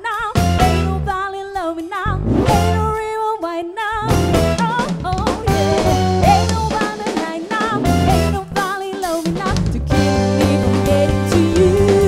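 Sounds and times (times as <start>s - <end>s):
electric bass: 0.3s - 1.3s, 2.1s - 3.1s, 4.0s - 6.8s, 7.8s - 8.6s, 9.6s - 12.0s
live band playing: 0.3s - 1.4s, 2.1s - 3.1s, 4.0s - 12.0s.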